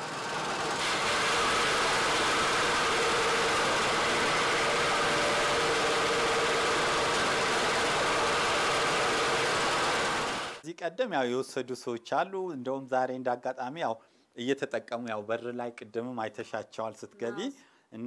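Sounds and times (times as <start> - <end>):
motorised machine running: 0.0 - 10.6
machine scraping leaf pulp: 0.7 - 10.6.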